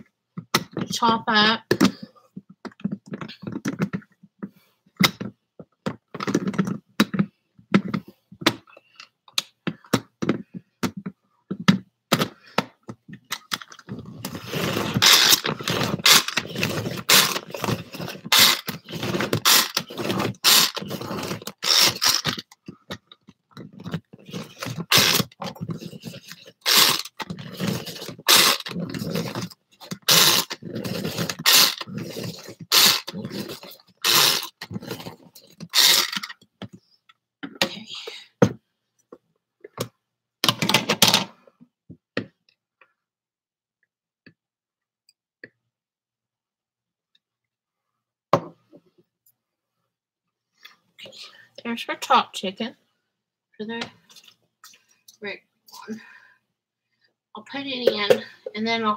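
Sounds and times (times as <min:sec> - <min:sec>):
food chopper scraping and thunking: 0:13.4 - 0:23.0, 0:23.6 - 0:36.3.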